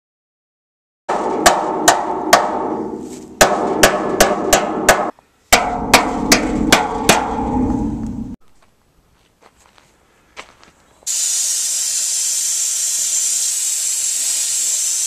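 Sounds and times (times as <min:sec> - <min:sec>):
hammer clanking on steel wall: 0:01.1 - 0:08.0
metal wall ringing: 0:01.1 - 0:08.4.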